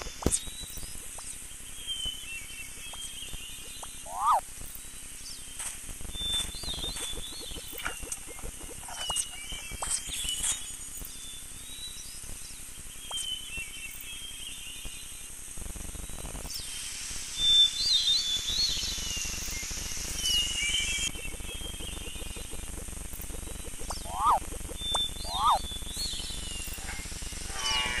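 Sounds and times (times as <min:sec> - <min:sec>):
steady hiss: 0:00.0 - 0:28.0
birds chirping: 0:02.7 - 0:04.4, 0:06.2 - 0:10.5, 0:18.4 - 0:28.0.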